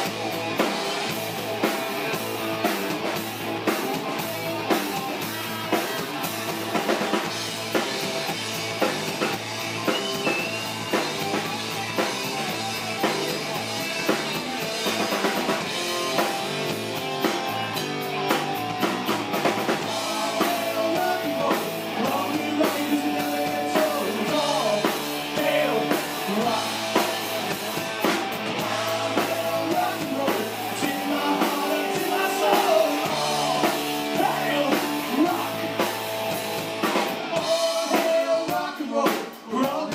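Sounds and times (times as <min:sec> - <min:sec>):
electric guitar: 0:00.0 - 0:39.6
drum kit: 0:00.0 - 0:39.9
person singing: 0:19.8 - 0:27.1, 0:28.6 - 0:35.9, 0:37.2 - 0:39.9.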